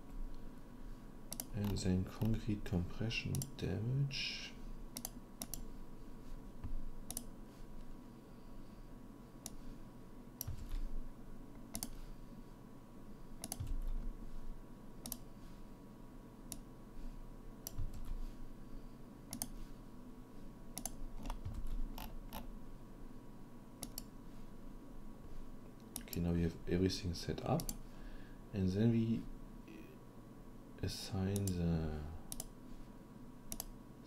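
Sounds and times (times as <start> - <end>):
faint steady hum: 0.0 - 34.0
mouse and keyboard clicks: 11.7 - 12.0, 13.4 - 13.8.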